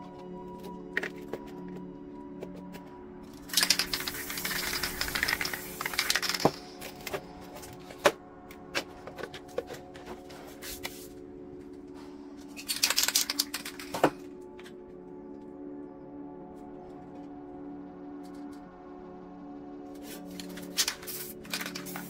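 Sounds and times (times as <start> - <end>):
quiet background music: 0.0 - 22.0
spray paint can rattling: 3.4 - 7.2, 12.6 - 14.1, 20.0 - 22.0.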